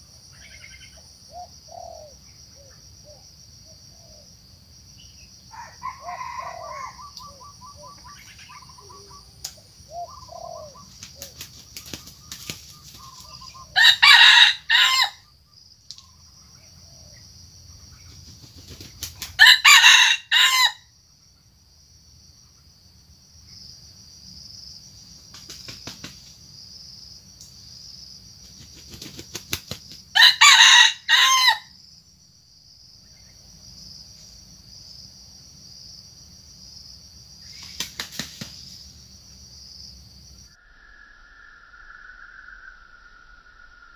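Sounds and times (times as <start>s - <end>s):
insects droning: 0.0s - 43.9s
rooster crowing: 5.5s - 7.5s, 13.5s - 15.2s, 19.4s - 20.9s, 30.1s - 31.7s.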